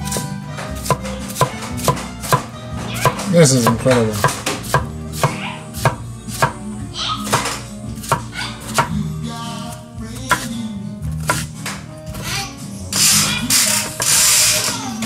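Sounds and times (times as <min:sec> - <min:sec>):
knife chopping on wooden board: 0:00.0 - 0:06.6, 0:07.2 - 0:09.0, 0:10.3 - 0:10.5, 0:11.2 - 0:11.5.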